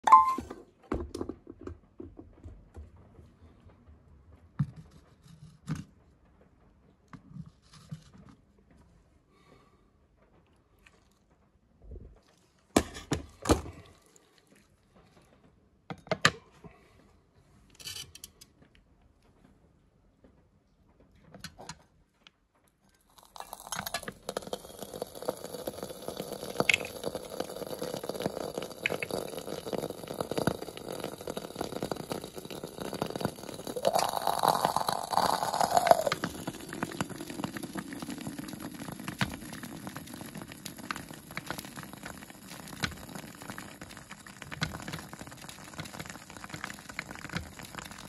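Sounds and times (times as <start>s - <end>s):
egg sizzling in a pan: 23.2s - 48.0s.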